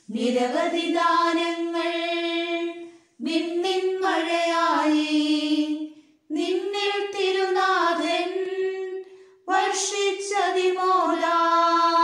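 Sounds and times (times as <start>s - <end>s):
high voices singing a hymn: 0.0s - 12.0s.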